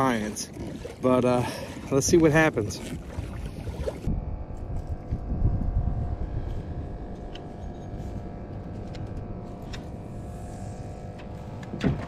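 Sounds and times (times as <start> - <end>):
faint mechanical hum: 0.0 - 12.0
low rumble: 2.9 - 12.0.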